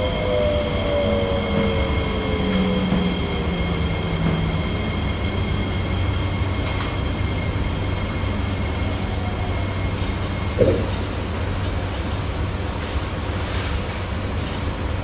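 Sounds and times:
train motor whine: 0:00.0 - 0:11.0
wheels rumbling on rails: 0:00.0 - 0:15.0.

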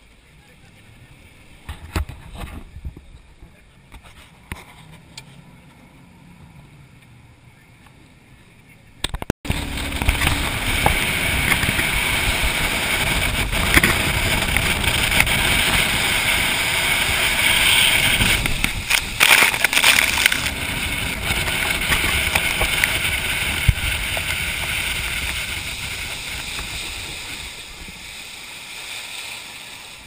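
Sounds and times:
jet boat engine: 0:05.4 - 0:30.0
water spray rushing: 0:09.5 - 0:30.0.

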